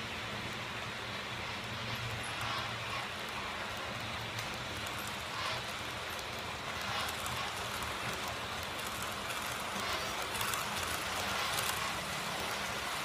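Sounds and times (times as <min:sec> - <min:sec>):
model trains rolling on track: 0:00.0 - 0:13.0.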